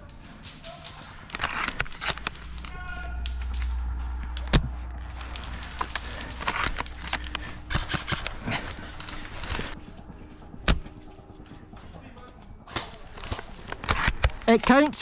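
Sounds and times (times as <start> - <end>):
twigs and leaves crackling underfoot: 0.0 - 11.5.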